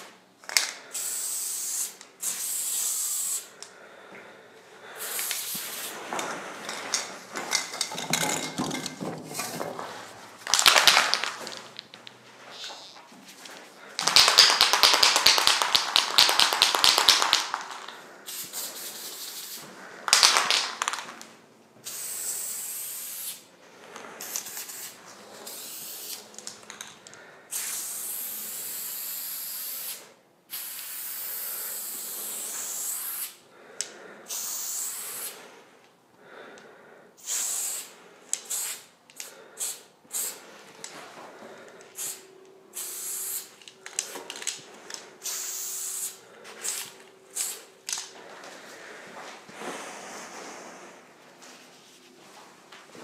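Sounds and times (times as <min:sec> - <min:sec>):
spray paint can hissing: 0:00.9 - 0:03.5, 0:05.0 - 0:06.0, 0:14.0 - 0:21.0, 0:21.8 - 0:23.5, 0:24.2 - 0:26.3, 0:27.5 - 0:33.4, 0:34.3 - 0:35.4, 0:37.2 - 0:38.9, 0:39.6 - 0:40.4, 0:42.0 - 0:43.6, 0:45.2 - 0:47.7
spray can rattling when shaken: 0:06.7 - 0:12.0, 0:14.0 - 0:21.2, 0:42.8 - 0:48.1.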